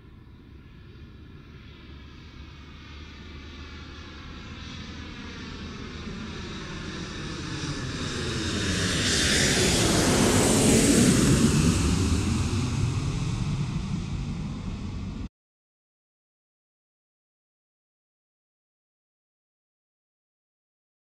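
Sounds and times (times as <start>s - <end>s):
airplane passing overhead: 0.0s - 15.3s.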